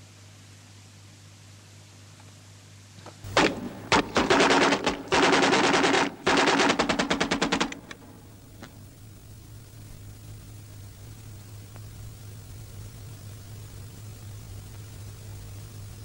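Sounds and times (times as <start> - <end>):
single gunshots: 3.3 - 8.3
automatic gunfire: 3.3 - 8.4.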